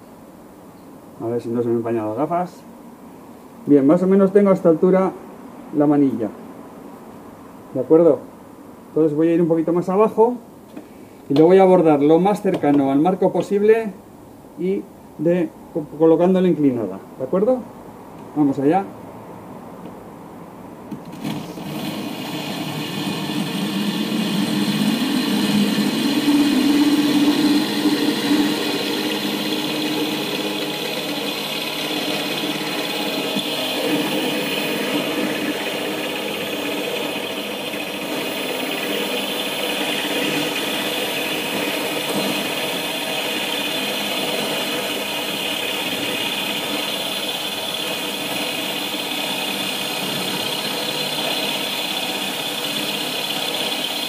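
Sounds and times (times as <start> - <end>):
power drill whining into glass: 21.2 - 54.0.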